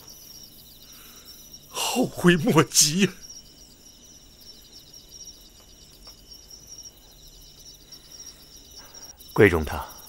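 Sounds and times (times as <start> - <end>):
crickets chirring: 0.0 - 10.0.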